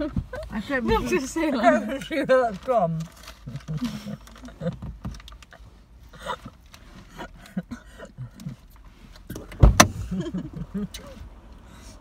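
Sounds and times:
small handling clicks and rustles: 0:00.0 - 0:07.7.

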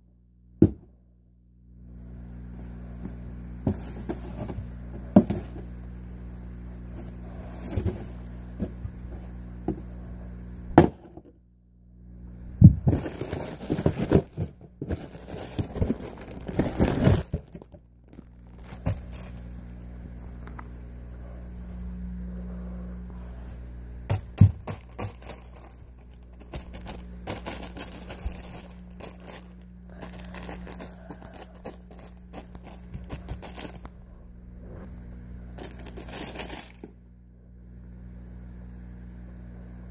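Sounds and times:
steady low hum: 0:00.0 - 0:39.9
cardboard box tearing and rustling: 0:12.8 - 0:17.6, 0:24.2 - 0:33.8, 0:35.6 - 0:36.9.

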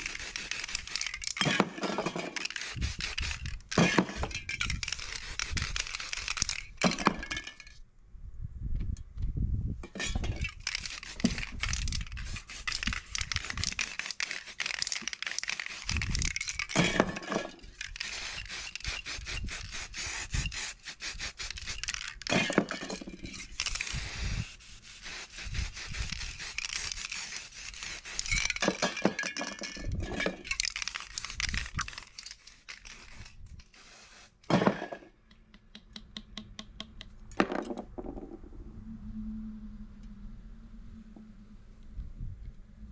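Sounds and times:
scraping and rubbing on board: 0:00.0 - 0:07.2, 0:10.4 - 0:33.3
spray cans hissing: 0:00.0 - 0:07.6, 0:10.4 - 0:35.0.

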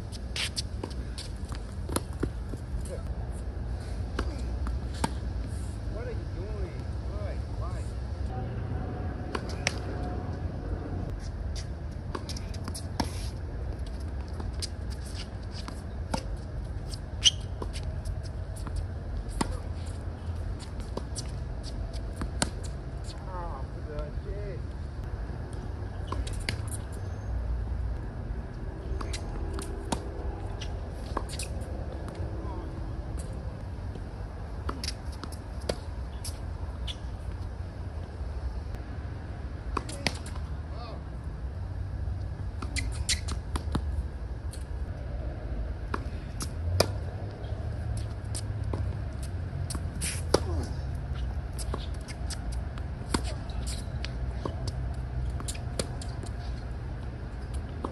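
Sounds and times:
steady low rumble: 0:00.0 - 0:42.7
low rumble: 0:08.1 - 0:12.1
racquets striking tennis ball: 0:45.9 - 0:56.4.

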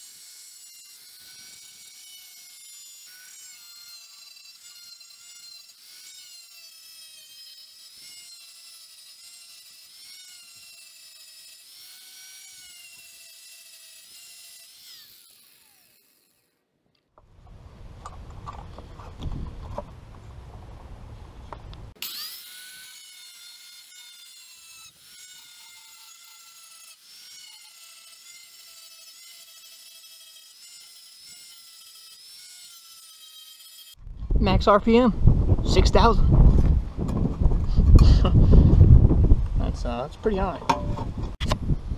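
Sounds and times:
angle grinder cutting steel: 0:00.0 - 0:16.6, 0:21.9 - 0:34.1.

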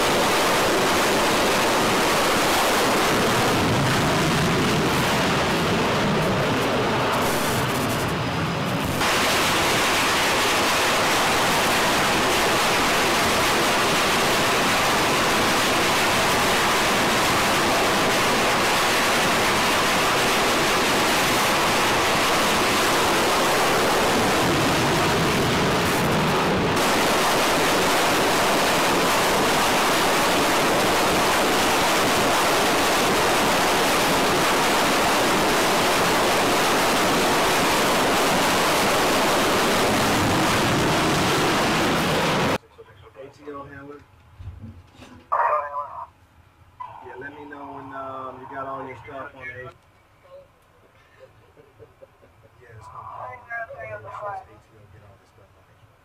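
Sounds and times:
jet engines rushing: 0:00.0 - 0:42.6.

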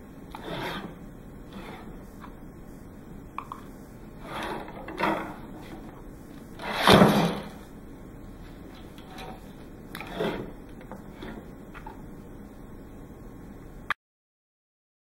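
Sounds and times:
rope scraping metal rods: 0:00.3 - 0:02.0, 0:04.2 - 0:05.8, 0:06.6 - 0:07.6, 0:09.0 - 0:11.5.

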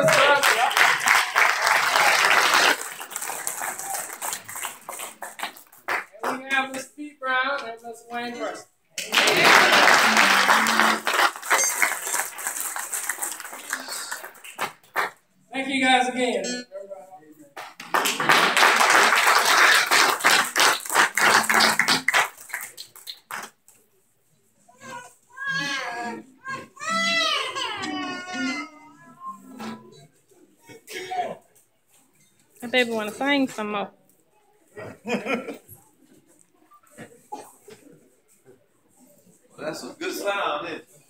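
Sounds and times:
scattered hand claps: 0:00.0 - 0:06.4, 0:09.0 - 0:15.2, 0:17.6 - 0:23.6
applause: 0:00.0 - 0:06.5, 0:09.0 - 0:15.2, 0:17.6 - 0:23.6.

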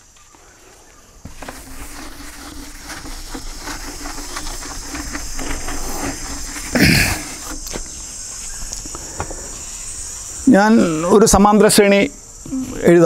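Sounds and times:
chalk wiped off blackboard: 0:01.3 - 0:07.8.

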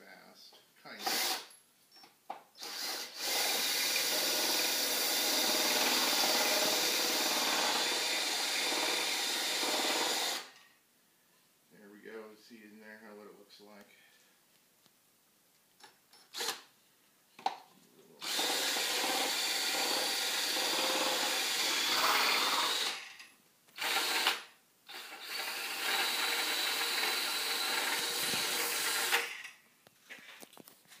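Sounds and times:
cordless drill grinding apple: 0:01.0 - 0:01.5, 0:02.6 - 0:10.6, 0:18.2 - 0:29.6.

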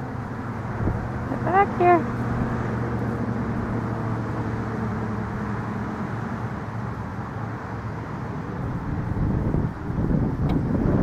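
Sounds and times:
outdoor background noise: 0:00.0 - 0:11.0
vehicle engine humming: 0:00.0 - 0:11.0.

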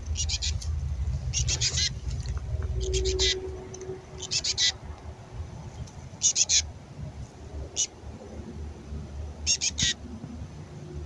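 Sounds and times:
chickadee harsh begging call: 0:00.1 - 0:00.6, 0:01.3 - 0:02.0, 0:02.7 - 0:04.8, 0:06.2 - 0:06.7, 0:07.7 - 0:08.0, 0:09.4 - 0:10.0.

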